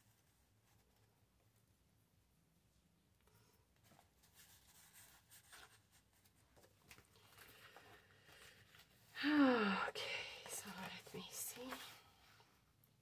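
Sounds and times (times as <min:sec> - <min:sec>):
paper cards rustling and tapping: 0:03.8 - 0:09.0, 0:10.4 - 0:12.0.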